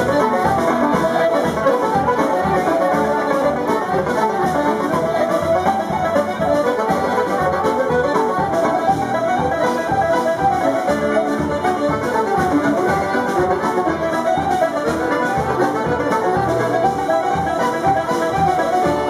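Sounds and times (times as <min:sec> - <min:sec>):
drum kit steady beat: 0:00.0 - 0:19.0
folk band playing fast melody: 0:00.0 - 0:19.0.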